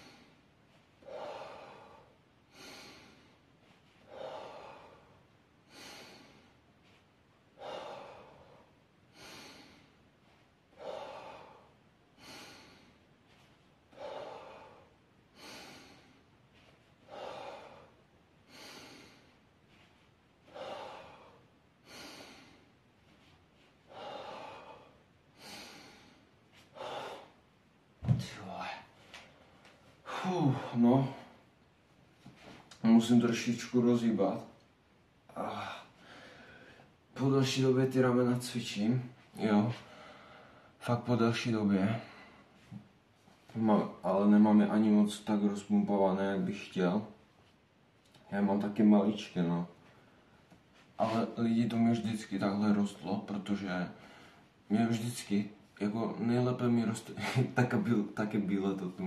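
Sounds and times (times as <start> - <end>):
man breathing hard: 0.0 - 27.5, 35.3 - 37.0, 39.8 - 40.8
dumbbells thumping down: 28.0 - 28.4.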